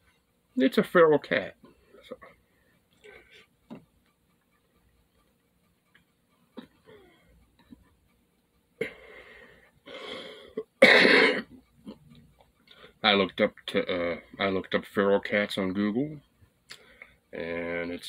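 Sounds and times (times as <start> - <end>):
man clearing throat: 10.8 - 11.6
man coughing: 10.8 - 11.6.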